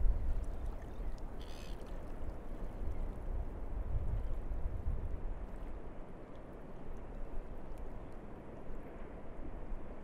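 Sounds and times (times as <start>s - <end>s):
wind and water rushing rumble: 0.0s - 10.0s
faint ticks: 0.3s - 3.1s.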